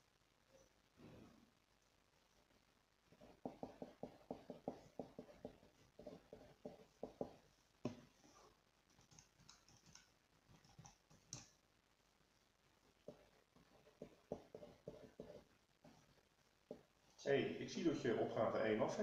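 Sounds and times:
pen writing on paper: 3.2 - 8.0, 13.1 - 15.5.

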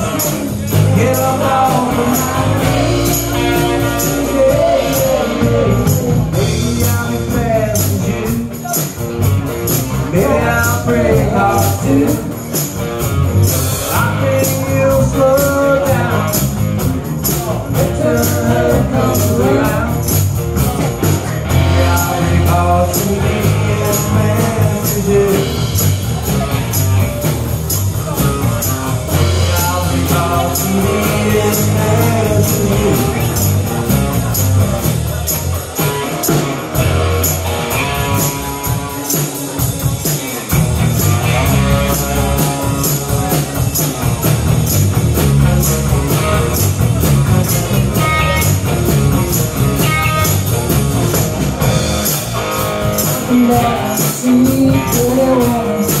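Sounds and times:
electric bass: 0.0 - 56.0
electric guitar: 0.0 - 56.0
live rock band: 0.0 - 56.0
tambourine: 0.0 - 56.0.

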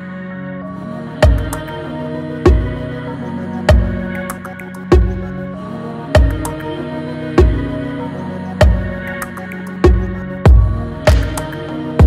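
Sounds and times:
slow deep beat: 9.8 - 11.6.

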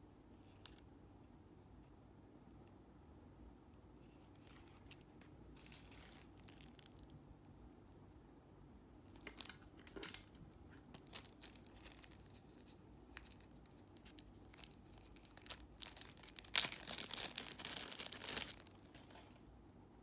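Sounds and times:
plastic zip bag crinkling: 5.6 - 7.1, 9.1 - 19.4.

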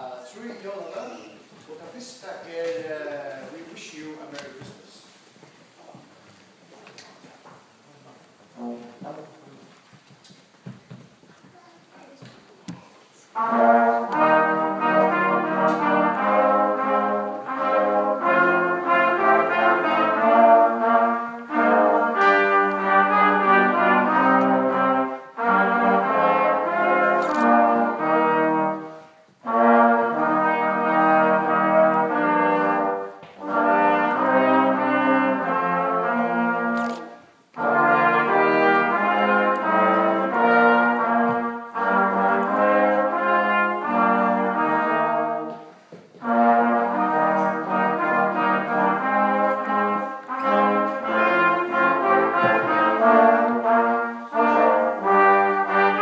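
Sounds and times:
brass ensemble playing chords: 8.5 - 9.5, 13.3 - 56.0.

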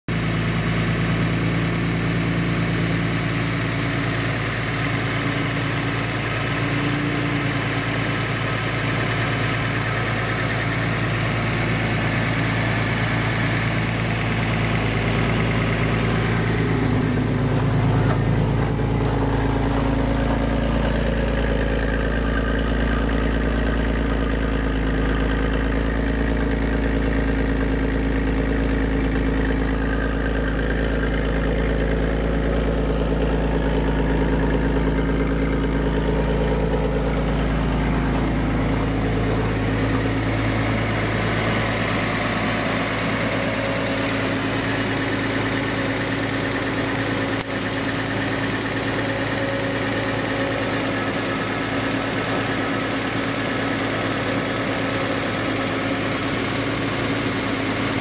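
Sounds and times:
car engine idling: 0.0 - 58.0
deep exhaust note: 10.9 - 46.1.

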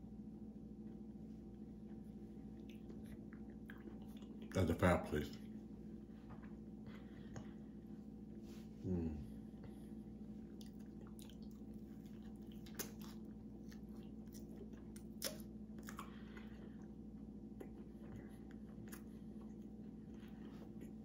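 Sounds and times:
steady low hum: 0.0 - 21.0
person chewing: 1.7 - 4.5, 9.0 - 21.0.

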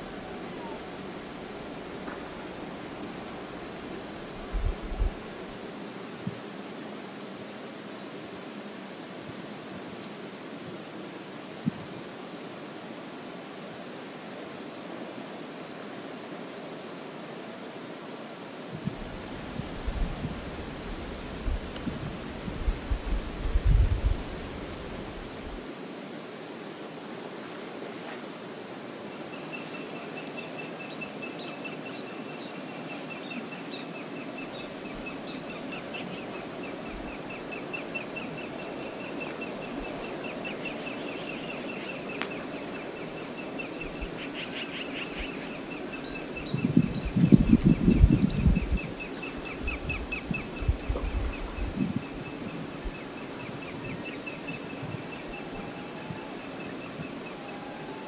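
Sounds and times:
river water rushing: 0.0 - 4.4.

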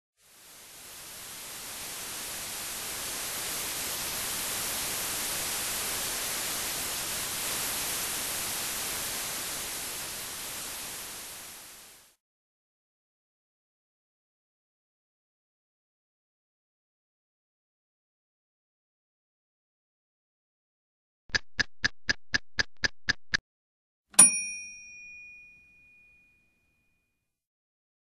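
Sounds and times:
static-like hiss: 0.2 - 12.2.

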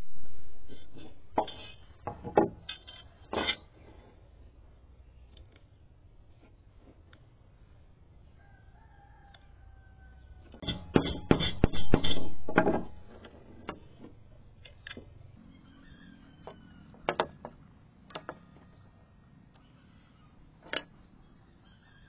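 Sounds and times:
rooster crowing: 8.4 - 10.6, 15.4 - 17.4, 21.6 - 22.0.

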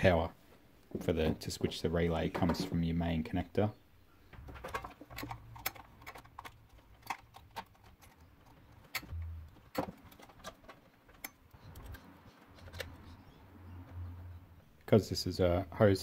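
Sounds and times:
plastic parts clicking: 4.4 - 13.2.

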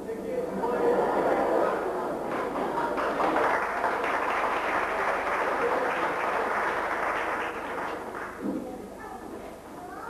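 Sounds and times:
audience applauding: 2.3 - 8.4.

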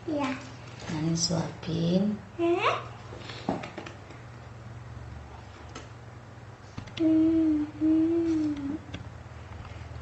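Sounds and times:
low background hum: 0.0 - 10.0
person humming: 7.0 - 9.0.

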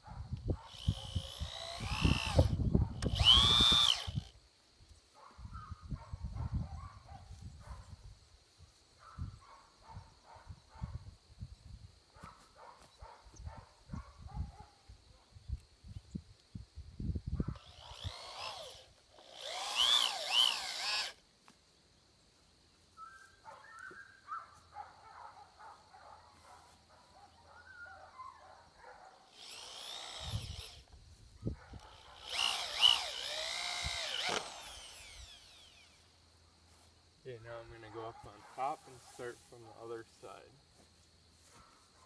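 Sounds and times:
cordless drill driving screws: 0.7 - 4.3, 17.6 - 21.2, 29.3 - 31.0, 31.8 - 36.1.

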